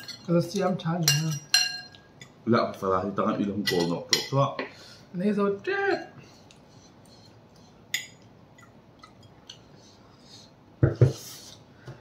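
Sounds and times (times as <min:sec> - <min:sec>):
forks clinking on plates: 0:00.0 - 0:02.4, 0:03.5 - 0:04.4.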